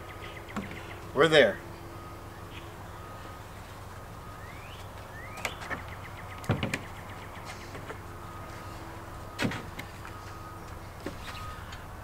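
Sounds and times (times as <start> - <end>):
faint steady hum: 0.0 - 12.0
hard knocks: 6.4 - 6.9.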